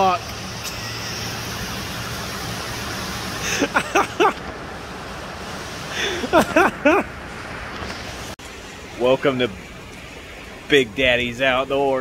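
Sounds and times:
steady rain: 0.0s - 12.0s
person laughing: 3.4s - 4.4s, 5.9s - 7.1s.

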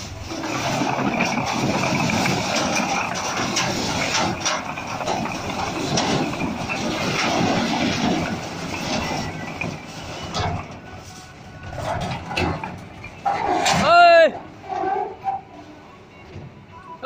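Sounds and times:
bricks clattering onto a pile: 0.4s - 10.8s.

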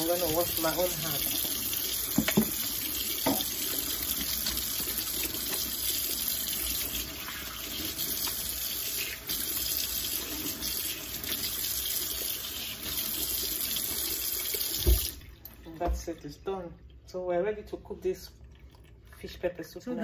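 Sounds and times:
tap running into a sink: 1.2s - 6.0s, 8.1s - 8.6s, 14.5s - 15.2s.

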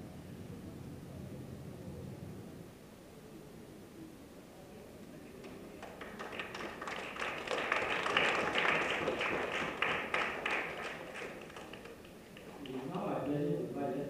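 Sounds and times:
audience applauding: 5.4s - 13.2s.

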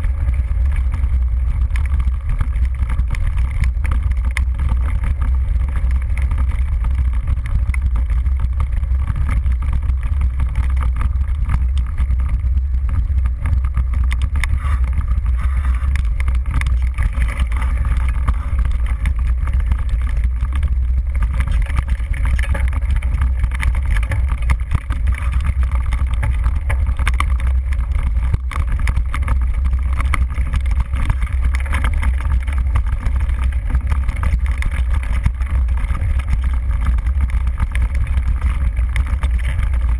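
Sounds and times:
bike rattling and knocking: 0.0s - 39.9s
wind buffeting microphone: 0.0s - 39.9s.

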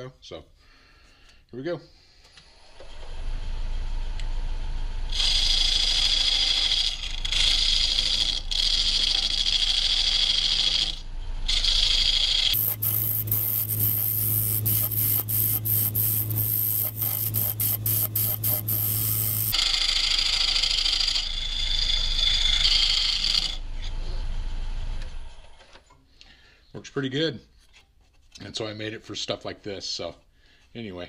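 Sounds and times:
wood lathe motor hum: 2.5s - 25.5s
lathe tool scraping wood: 5.1s - 25.6s.

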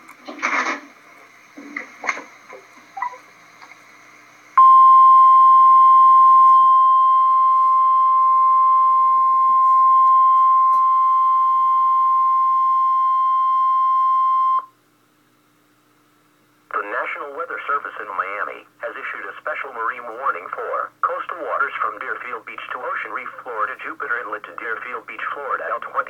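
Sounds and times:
steady alarm tone: 4.6s - 14.7s.

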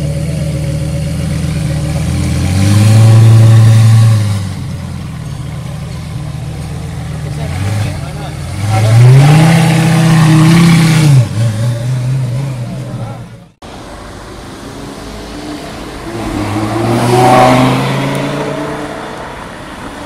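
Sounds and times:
supercar engine high revs: 1.6s - 4.6s, 7.3s - 13.1s
car accelerating past: 14.9s - 20.0s.

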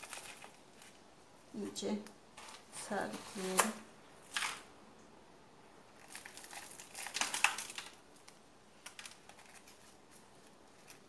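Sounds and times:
plastic bottle crinkling: 0.0s - 1.0s, 6.0s - 11.0s.

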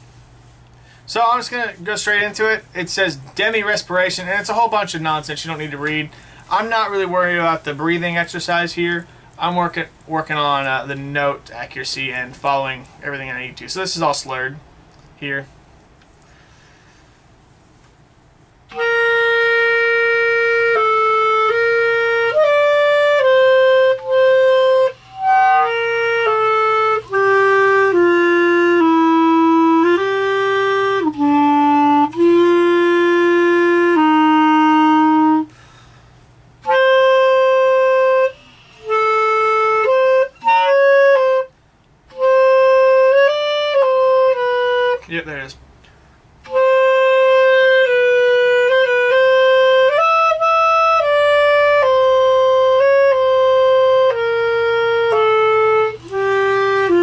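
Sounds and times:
solo clarinet: 18.7s - 35.5s, 36.6s - 41.5s, 42.1s - 45.0s, 46.4s - 57.0s.

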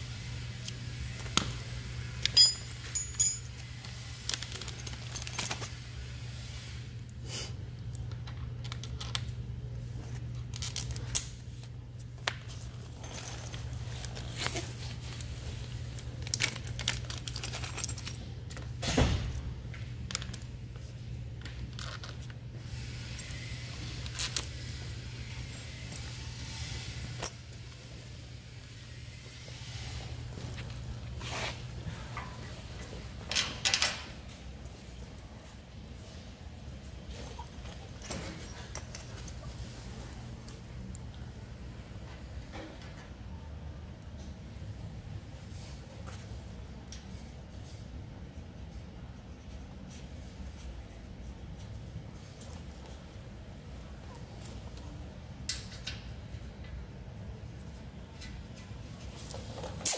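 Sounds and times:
metal hardware clinking: 2.2s - 5.9s, 16.2s - 19.4s, 20.0s - 22.2s.

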